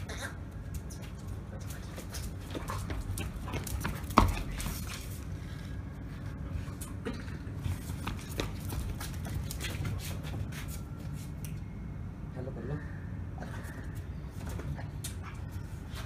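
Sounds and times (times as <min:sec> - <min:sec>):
dog paws clicking on concrete: 0:00.5 - 0:05.3, 0:07.7 - 0:11.6
footsteps on concrete: 0:00.7 - 0:05.4, 0:07.6 - 0:11.4.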